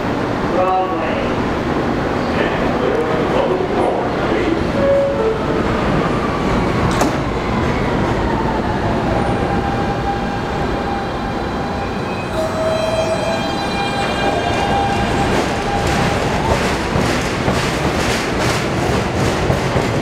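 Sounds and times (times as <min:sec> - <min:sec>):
train rumble and hum: 0:00.0 - 0:20.0
train doors shutting with a click: 0:06.9 - 0:07.3
two-tone chime: 0:12.1 - 0:14.8.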